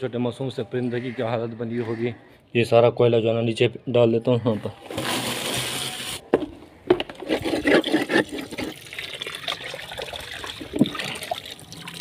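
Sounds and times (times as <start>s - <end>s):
tap water running and splashing: 8.5s - 12.0s.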